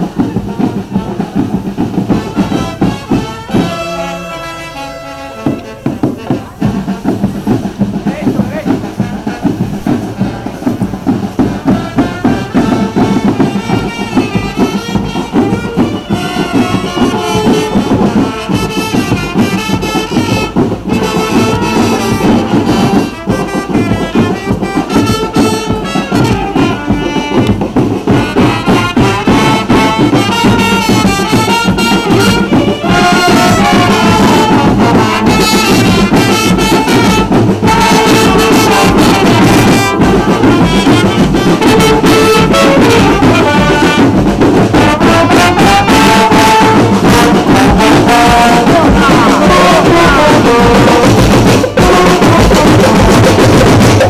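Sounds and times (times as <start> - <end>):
marching band playing: 0.0 - 54.0.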